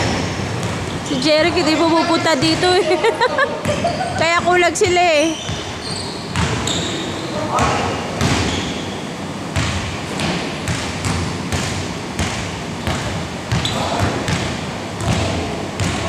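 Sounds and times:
players' voices: 0:01.0 - 0:08.6, 0:13.6 - 0:16.0
basketball bouncing on hardwood: 0:06.3 - 0:06.6.

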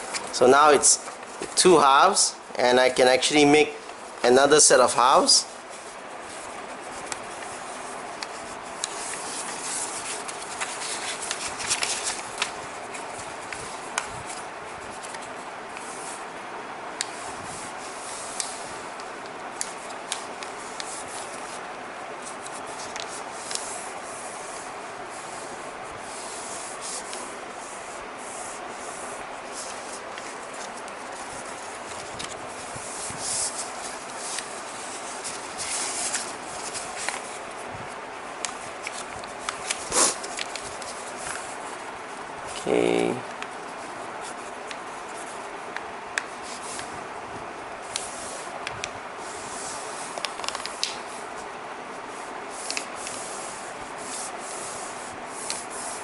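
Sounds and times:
fingers rubbing along paper folds: 0:03.3 - 0:16.3, 0:17.0 - 0:47.0
paper rustling: 0:03.4 - 0:16.2, 0:28.4 - 0:45.6
paper being folded and creased: 0:08.3 - 0:14.4
sharp paper crackles: 0:08.9 - 0:13.0.

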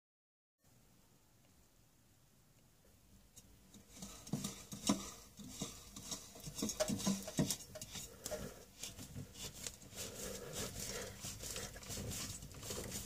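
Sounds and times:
fingers scraping metal oil filter: 0:03.8 - 0:13.0.

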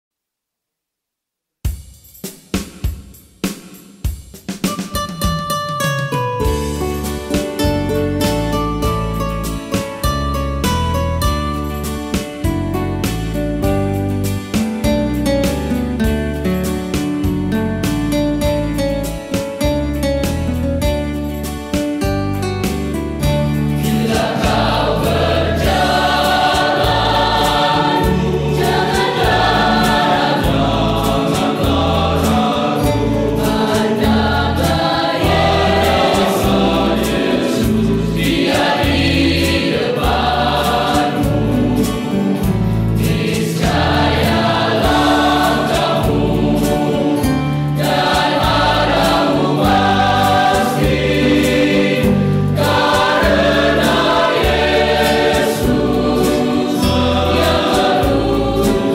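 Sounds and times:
mixed choir singing a hymn: 0:23.7 - 0:58.9.

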